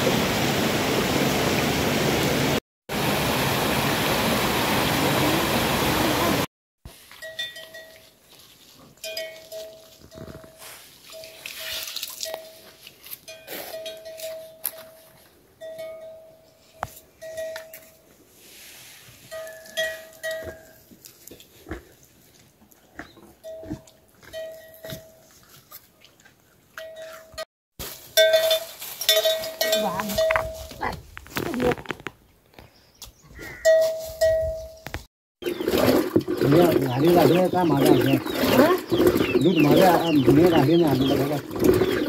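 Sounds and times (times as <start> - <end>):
livestock bell clanking: 7.1 - 8.2, 9.0 - 18.1, 19.3 - 20.9, 23.4 - 25.3, 26.8 - 27.5, 28.1 - 30.8, 33.6 - 34.9.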